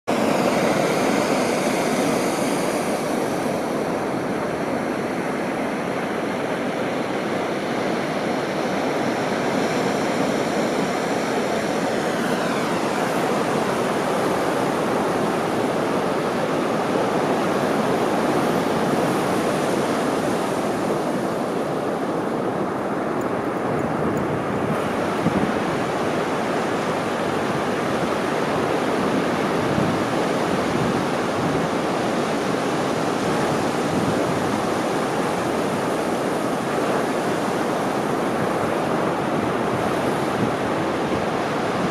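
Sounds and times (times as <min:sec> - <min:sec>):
faint high whine dropping in pitch: 0:00.1 - 0:04.6, 0:09.8 - 0:16.1
surf breaking on beach: 0:00.1 - 0:21.8.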